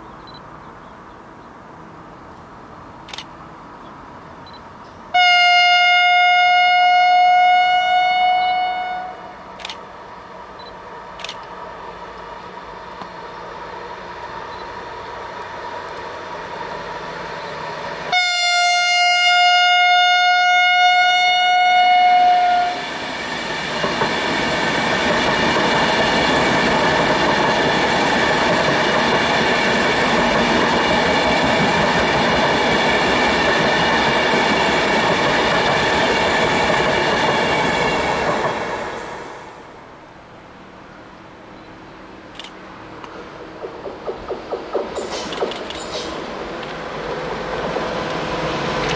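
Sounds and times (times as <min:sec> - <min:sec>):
train horn blast: 0:05.1 - 0:09.4, 0:18.1 - 0:22.9
train wheels rushing on rail: 0:08.1 - 0:48.9.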